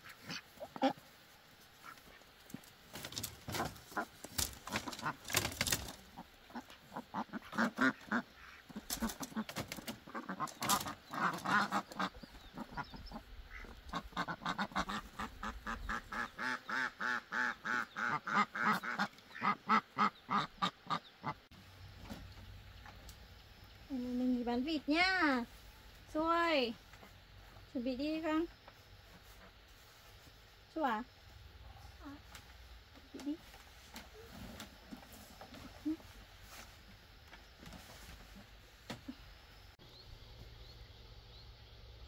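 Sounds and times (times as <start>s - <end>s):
ducks quacking: 0.0s - 1.1s, 1.8s - 2.3s, 3.5s - 5.4s, 6.0s - 21.5s.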